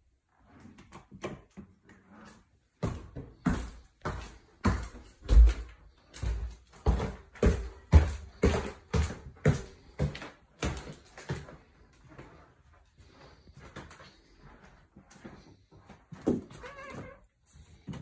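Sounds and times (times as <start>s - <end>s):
footsteps on wooden stairs: 2.8s - 12.5s.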